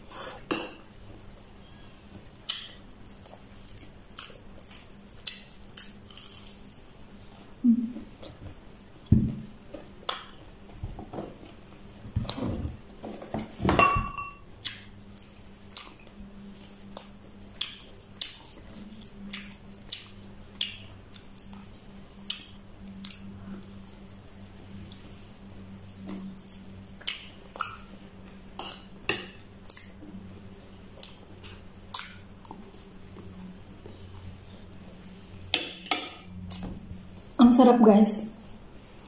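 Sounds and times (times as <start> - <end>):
tableware clinking: 13.7 - 14.4
mouth clicks and smacks: 31.0 - 32.6.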